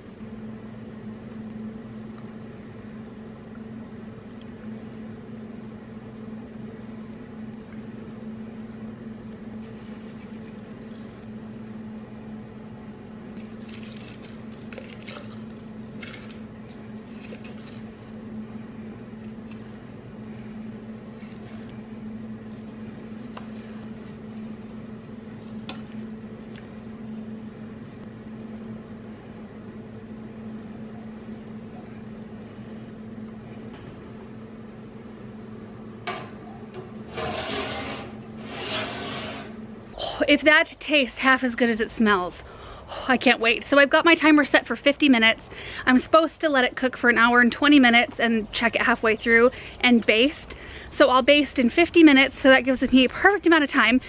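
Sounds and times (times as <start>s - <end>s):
steady low hum: 0.0s - 54.0s
wet squishing of raw chicken: 21.2s - 27.3s.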